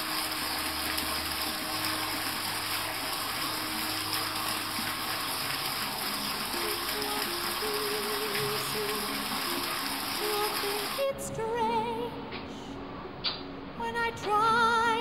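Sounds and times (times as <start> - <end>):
water rushing into pond: 0.0 - 11.1.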